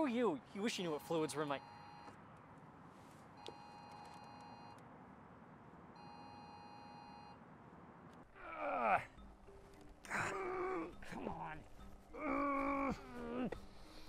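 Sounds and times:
phone alert beep: 1.6s - 2.1s, 3.4s - 4.8s.

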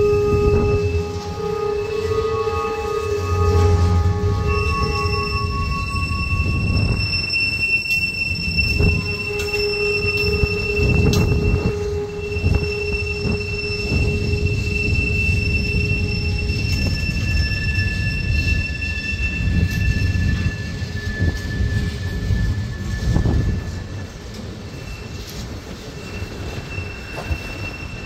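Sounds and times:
train boxcars rumbling past: 0.0s - 28.0s
train wheels squealing: 0.0s - 28.0s.

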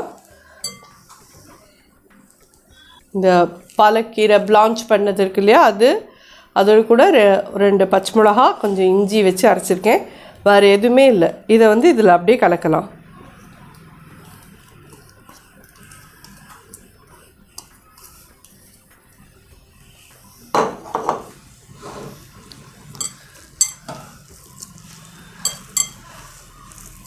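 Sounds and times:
spoon clinking against a vessel: 0.6s - 1.0s, 23.0s - 24.7s, 25.4s - 26.1s.

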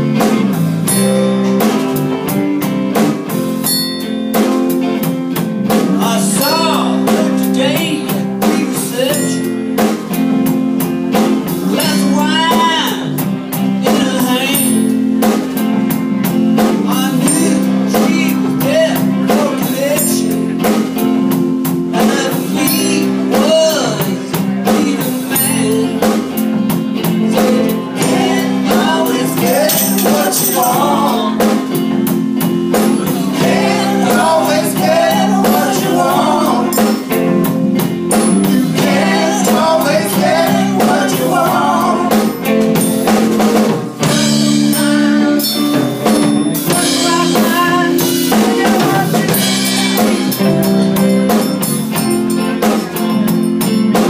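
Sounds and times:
conga drums: 0.0s - 54.0s
drum kit: 0.0s - 54.0s
electric bass: 0.0s - 54.0s
electric guitars: 0.0s - 54.0s
people singing: 5.8s - 9.4s, 21.9s - 31.9s, 32.7s - 43.0s, 46.6s - 50.5s.

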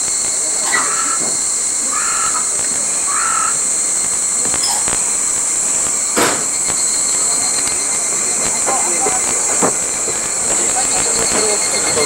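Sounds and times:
insects droning: 0.0s - 12.0s
crow cawing: 0.7s - 5.1s
sharp knock: 6.2s - 6.6s.

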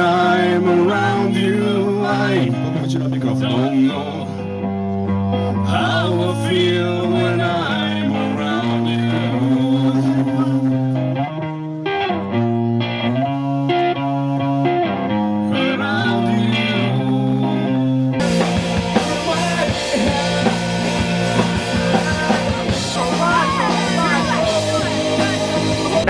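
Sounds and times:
crowd noise: 0.0s - 26.0s
guitar chords: 0.0s - 26.0s
live rock band: 0.0s - 26.0s.

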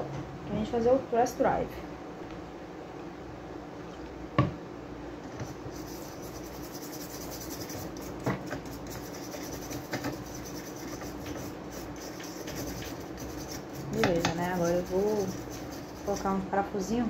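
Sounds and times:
steady low hum: 0.0s - 17.0s
scratchy scrubbing of circuit board: 5.4s - 16.4s.

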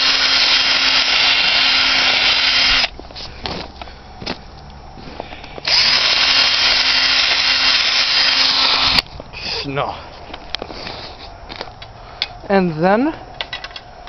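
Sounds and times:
power drill grinding into ice: 0.0s - 2.9s, 5.6s - 9.0s.

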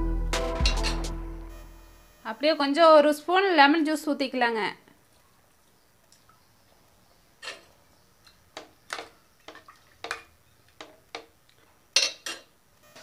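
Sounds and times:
metal spoon clinking on pan: 12.0s - 12.5s.

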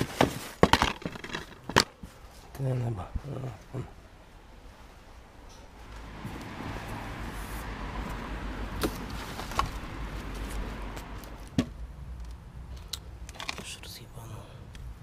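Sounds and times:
cardboard rustling scrape: 0.0s - 2.4s.

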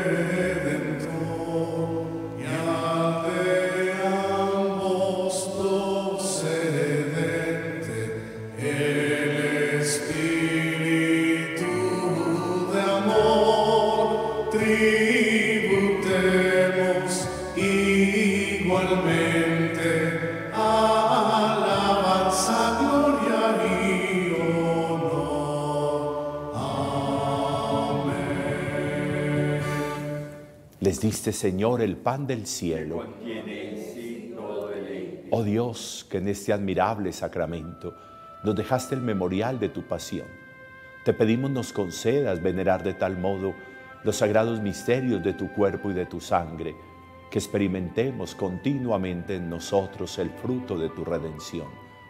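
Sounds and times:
sung devotional chant: 0.0s - 30.4s
musical backing: 0.0s - 52.0s.

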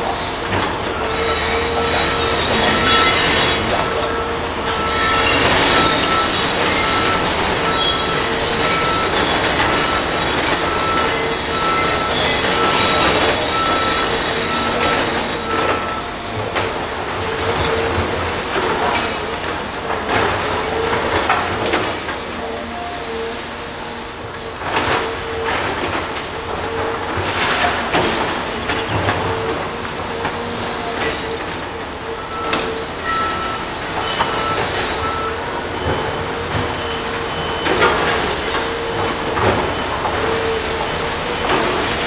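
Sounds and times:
loud machinery noise: 0.0s - 42.0s
high metallic squeals: 0.9s - 16.3s, 30.1s - 42.0s
electronic warning beep: 2.2s - 16.2s, 32.2s - 41.0s.

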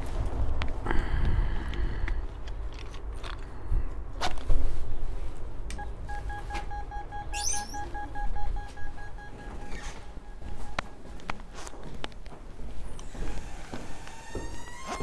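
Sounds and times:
intercom beeping rapidly: 5.8s - 11.3s.

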